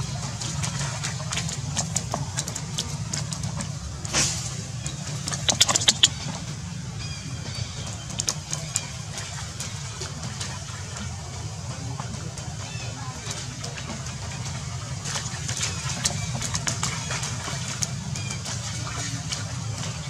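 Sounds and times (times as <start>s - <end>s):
water splashing: 0.0s - 20.0s.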